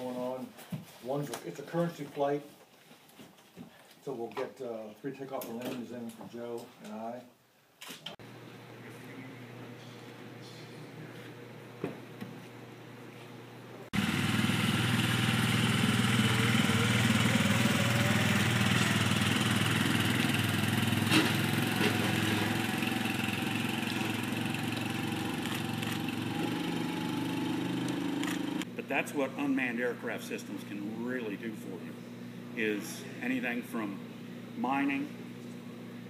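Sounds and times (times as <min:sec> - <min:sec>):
atv engine running: 0:14.0 - 0:28.7.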